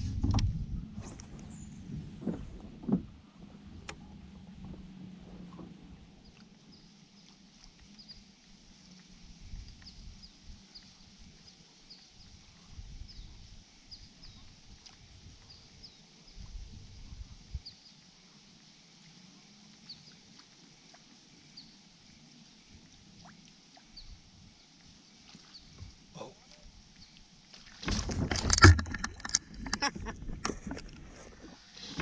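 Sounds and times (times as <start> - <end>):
low bumps and rumble: 0.0 - 6.1, 27.8 - 31.6.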